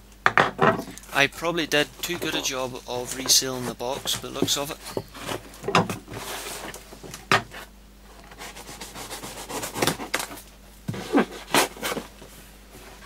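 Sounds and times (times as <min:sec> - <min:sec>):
cardboard flaps scraping and rustling: 0:08.3 - 0:13.0.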